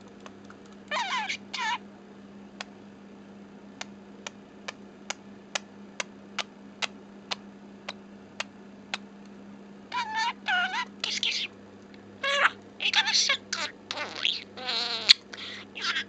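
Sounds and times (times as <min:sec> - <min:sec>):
budgerigar warbling chirps: 0:00.9 - 0:01.8, 0:09.9 - 0:11.5, 0:12.2 - 0:16.0.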